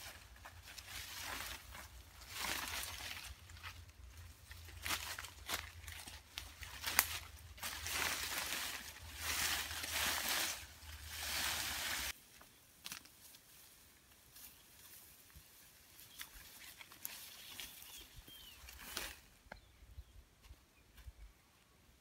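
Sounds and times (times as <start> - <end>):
feet crunching through dry leaves: 0.0 - 12.2
leafy branches rustling: 0.0 - 19.4
walking through grass: 0.0 - 19.4.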